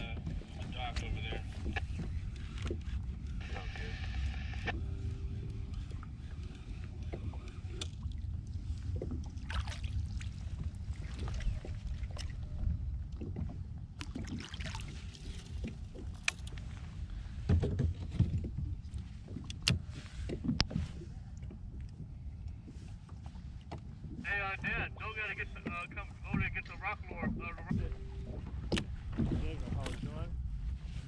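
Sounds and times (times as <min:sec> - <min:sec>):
clicks and knocks from boat: 0:00.0 - 0:03.4, 0:08.8 - 0:24.2, 0:25.6 - 0:30.2
water against kayak hull: 0:00.0 - 0:31.0.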